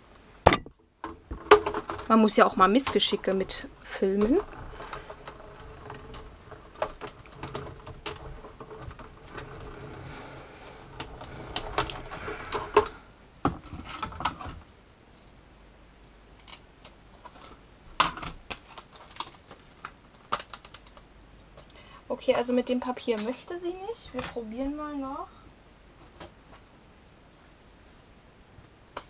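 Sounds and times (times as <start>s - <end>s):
die-cutting machine rollers cranking: 1.4s - 13.0s.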